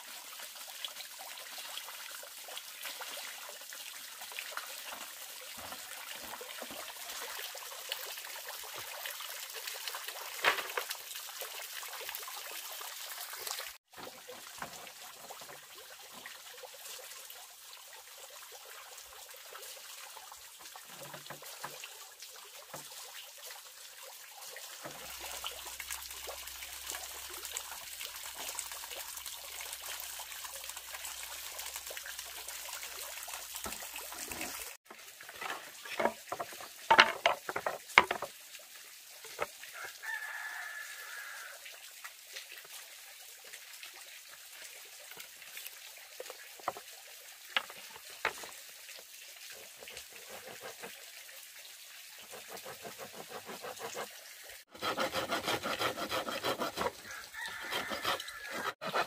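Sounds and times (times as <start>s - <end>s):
water trickling into pond: 0.0s - 59.0s
wooden planks knocking: 35.4s - 38.3s.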